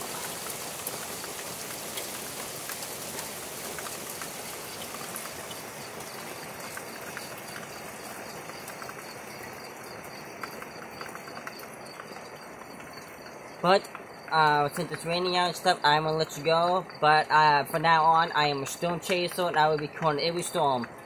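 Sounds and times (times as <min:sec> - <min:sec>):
steady rain hiss: 0:00.0 - 0:21.0.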